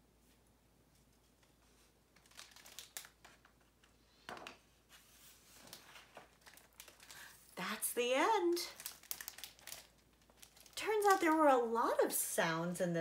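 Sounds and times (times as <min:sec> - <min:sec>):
paper pages rustling: 0:00.9 - 0:07.5, 0:08.4 - 0:11.5.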